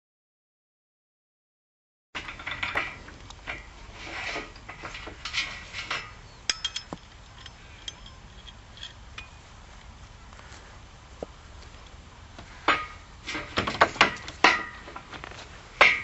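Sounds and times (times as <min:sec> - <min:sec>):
hand tool scraping metal rail: 0:02.2 - 0:09.4, 0:12.4 - 0:16.0
sharp metallic clinks: 0:05.9 - 0:09.5.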